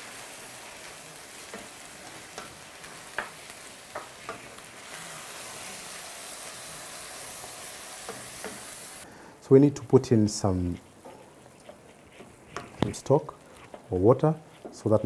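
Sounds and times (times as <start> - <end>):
food sizzling in frying pan: 0.0 - 9.1.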